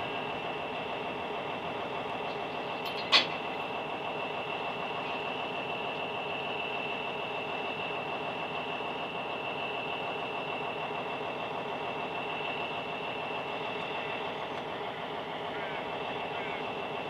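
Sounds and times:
diesel truck engine idling: 0.0 - 17.0.

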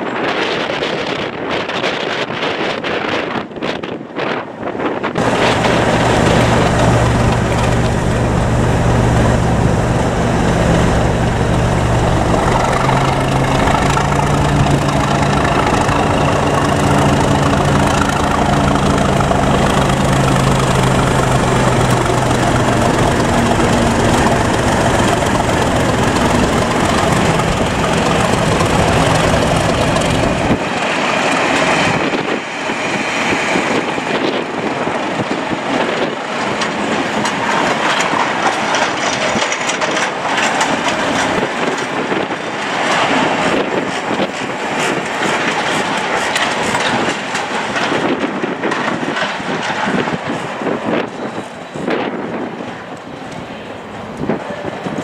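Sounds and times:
train wheels clattering on rails: 0.0 - 55.0
diesel locomotive engine running: 5.0 - 55.0.

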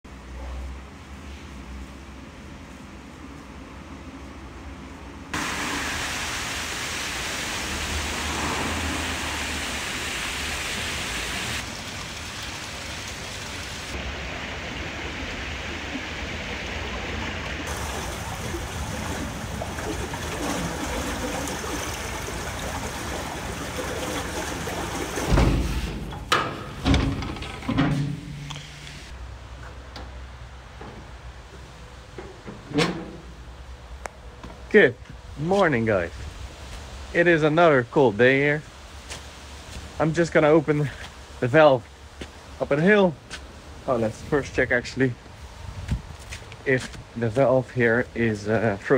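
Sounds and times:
stream water rushing: 5.4 - 26.8.

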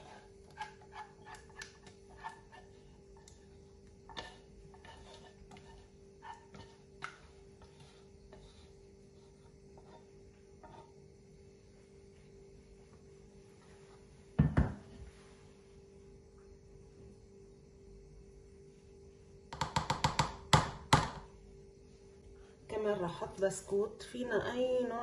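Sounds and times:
whisk tapping and scraping pot: 0.0 - 11.0
faint steady hum: 0.0 - 25.0.

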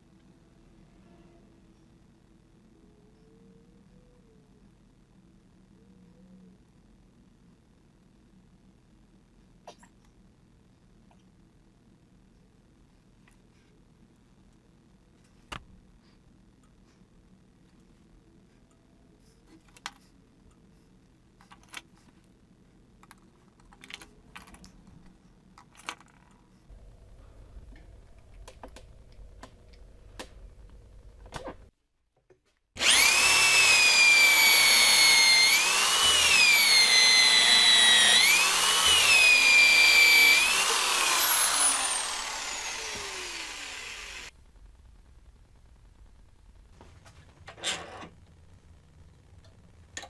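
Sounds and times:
electric drill boring into wood: 32.8 - 44.3.

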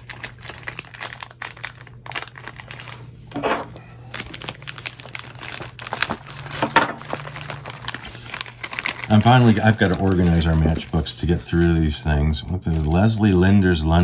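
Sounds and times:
plastic wrapping crinkling: 0.0 - 13.8.

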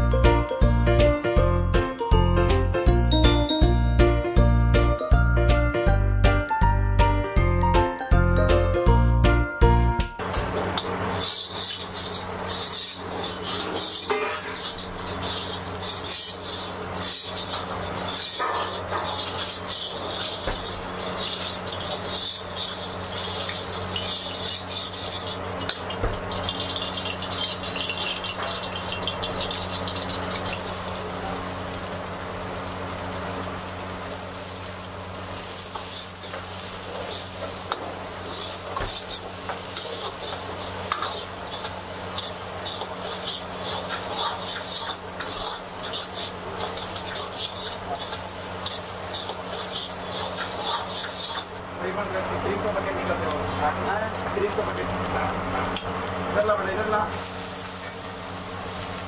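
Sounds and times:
vegetables sizzling in oil: 10.2 - 59.0
metal ladle scraping a pan: 10.8 - 28.6, 35.7 - 51.6.

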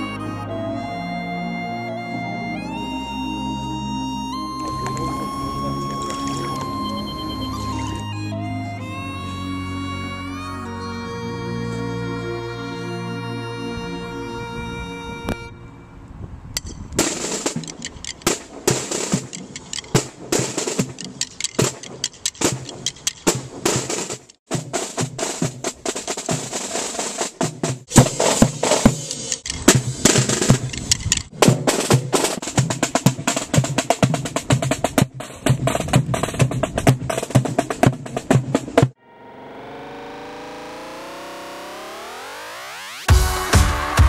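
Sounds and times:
marching drums: 17.0 - 39.0, 43.1 - 44.0.

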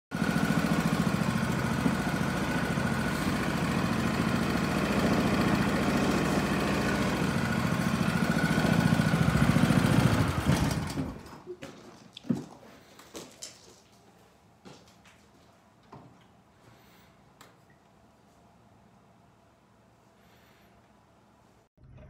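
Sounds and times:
small boat motor running: 0.1 - 11.3.

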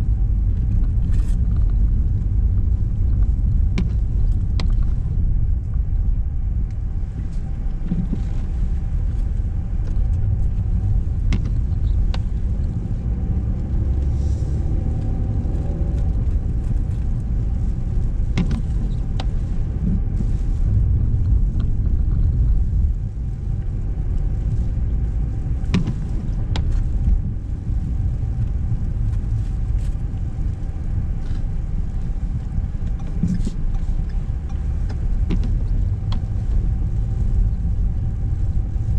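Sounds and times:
car engine and road noise: 0.0 - 38.9.

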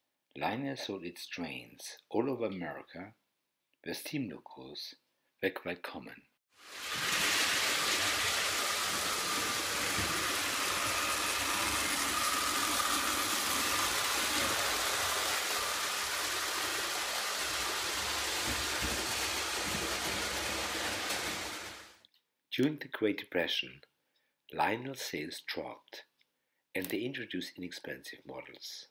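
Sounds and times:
toy trains whirring on metal track: 6.6 - 22.0.

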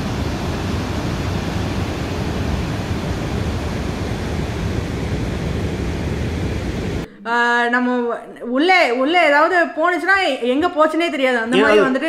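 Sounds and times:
waterfall rushing with low rumble: 0.0 - 7.0.

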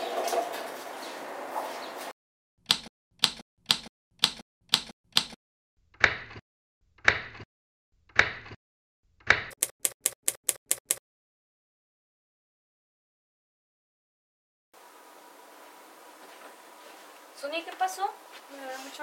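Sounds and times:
typewriter key strikes: 2.7 - 5.4.

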